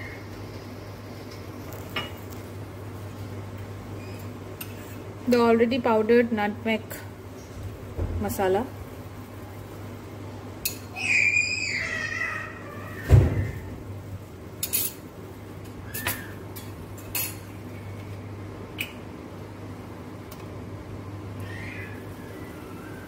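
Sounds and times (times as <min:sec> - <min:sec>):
metal utensils clinking on pot: 0:14.6 - 0:15.0, 0:15.9 - 0:17.5.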